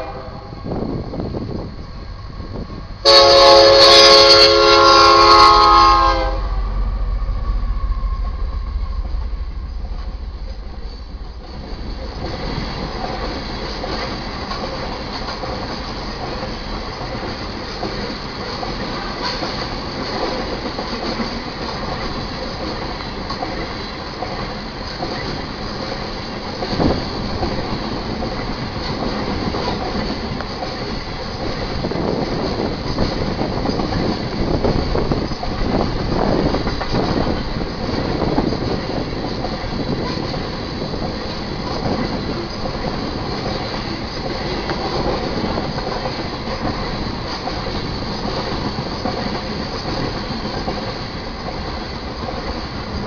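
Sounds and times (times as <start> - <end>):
locomotive air horn blast: 0.0 - 0.6, 3.0 - 6.8
deep locomotive engine rumble: 0.0 - 53.0
loud train clank: 2.6 - 53.0
train wheels clattering on rails: 8.2 - 53.0.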